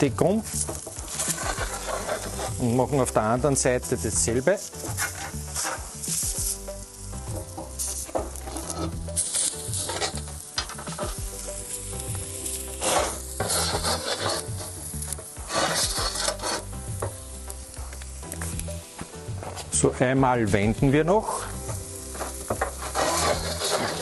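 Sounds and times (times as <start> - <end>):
steak sizzling on a grill plate: 0.0 - 19.7, 20.4 - 24.0
metal tool scraping a plate: 1.1 - 2.6, 12.8 - 14.7, 15.5 - 16.7, 22.2 - 24.0.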